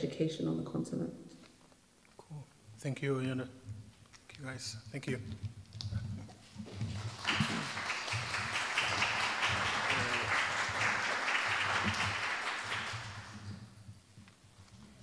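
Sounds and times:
audience applauding: 0:06.6 - 0:13.6.

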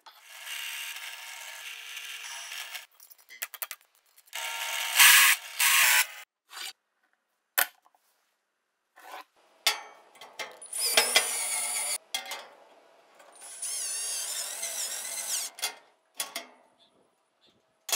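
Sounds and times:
cordless drill driving screws: 0:00.2 - 0:02.9, 0:04.4 - 0:06.2, 0:10.7 - 0:12.0
drill press cutting metal: 0:10.7 - 0:12.0.

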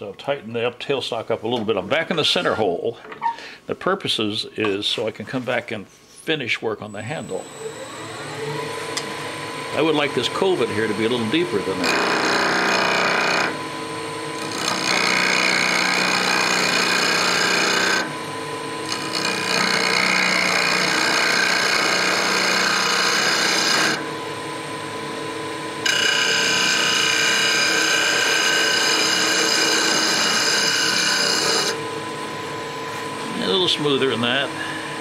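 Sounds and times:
wood lathe humming: 0:07.4 - 0:35.0
gouge rasping on spinning wood: 0:11.6 - 0:13.5, 0:14.4 - 0:18.1, 0:18.8 - 0:24.0, 0:25.8 - 0:31.8.

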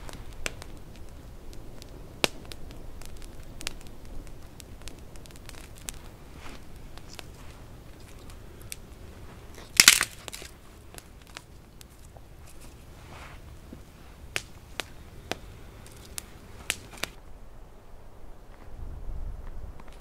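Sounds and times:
campfire crackling and popping: 0:00.0 - 0:17.7, 0:19.4 - 0:20.0
twigs snapping: 0:01.8 - 0:17.2.

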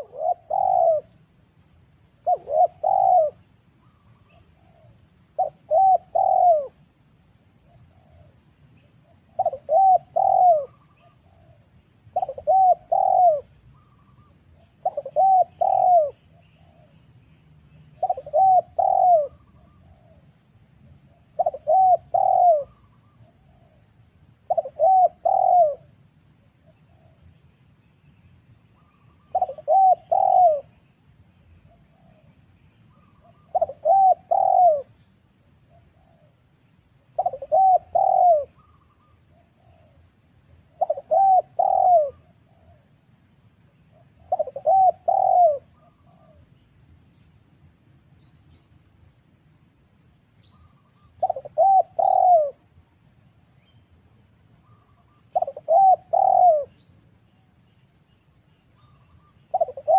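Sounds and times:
dove cooing: 0:00.0 - 0:01.3, 0:02.2 - 0:06.9, 0:07.6 - 0:17.0, 0:18.0 - 0:20.3, 0:21.1 - 0:25.9, 0:26.6 - 0:27.3, 0:28.8 - 0:30.8, 0:32.9 - 0:35.0, 0:35.7 - 0:36.4, 0:37.2 - 0:40.0, 0:40.6 - 0:43.0, 0:43.9 - 0:46.5, 0:50.6 - 0:52.7, 0:54.6 - 0:56.9, 0:58.8 - 0:59.9.

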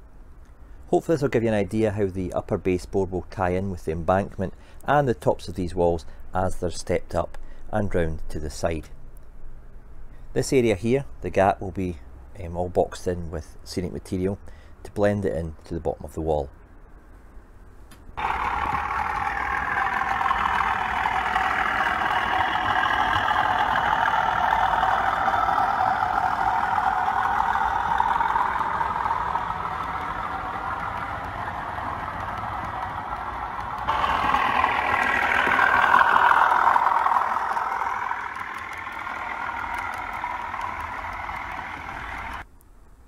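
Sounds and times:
model trains running: 0:18.2 - 0:42.5.

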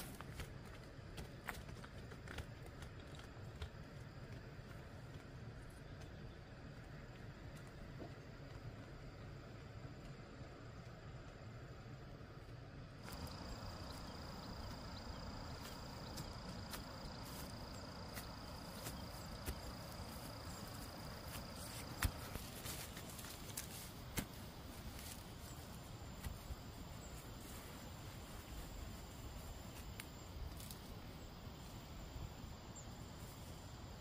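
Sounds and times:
outdoor background noise: 0:00.0 - 0:34.0
high thin insect call: 0:13.0 - 0:34.0.

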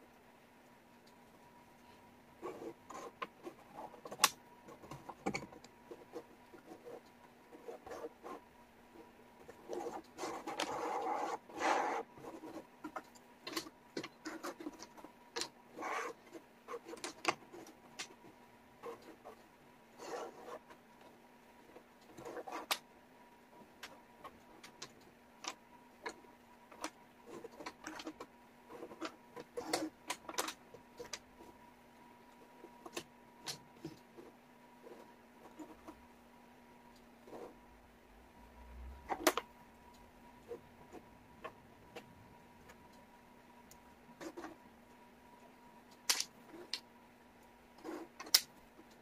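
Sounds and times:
wooden puzzle pieces clicking: 0:46.0 - 0:46.8.

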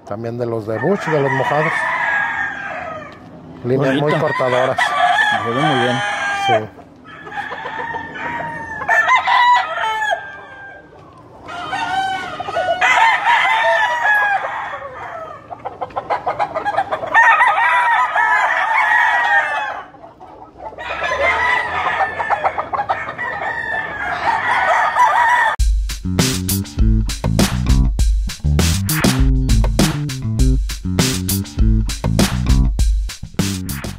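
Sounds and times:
roosters crowing: 0:00.6 - 0:25.6.

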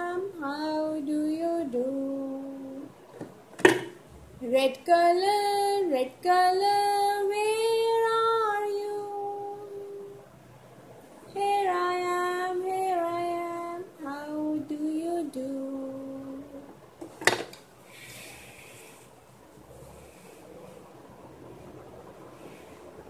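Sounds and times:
woman singing: 0:00.0 - 0:03.0, 0:04.4 - 0:10.2, 0:11.3 - 0:16.7.

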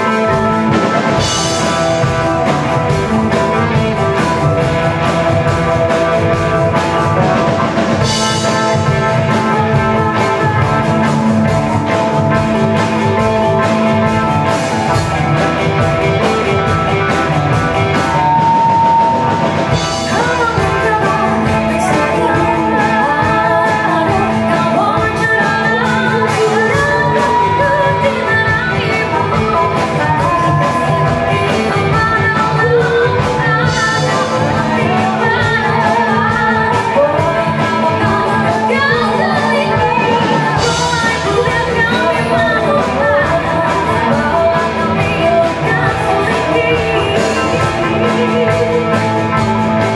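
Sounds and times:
bass: 0:00.0 - 0:49.9
drum kit: 0:00.0 - 0:49.9
electric guitars: 0:00.0 - 0:49.9
keyboard: 0:00.0 - 0:49.9
person singing: 0:00.0 - 0:49.9.

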